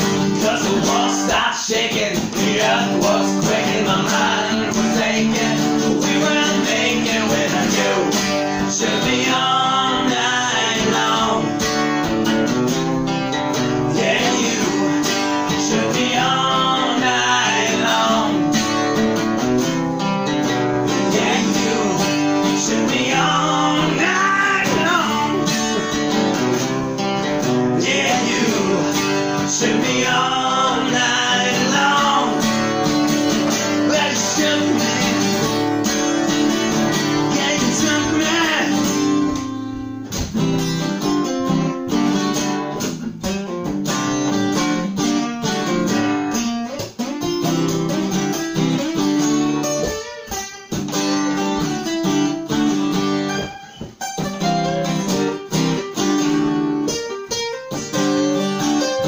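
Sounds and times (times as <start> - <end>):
man singing: 0.0 - 11.8, 13.8 - 18.7, 20.9 - 26.6, 27.6 - 36.0, 36.9 - 39.8
acoustic guitars strummed: 0.0 - 59.0.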